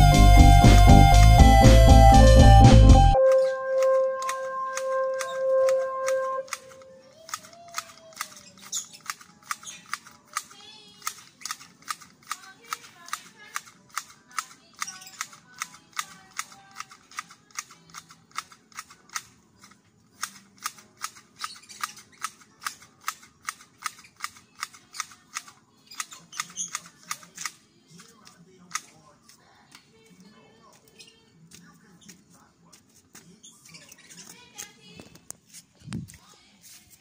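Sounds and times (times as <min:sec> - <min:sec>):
grass shears snipping: 0:03.2 - 0:29.8.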